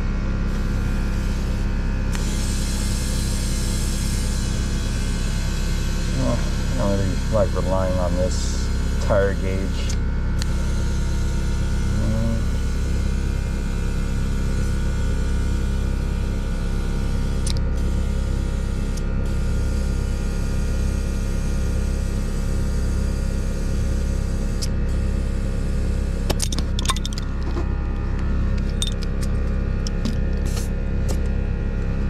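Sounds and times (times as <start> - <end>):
air compressor humming: 0.0 - 32.0.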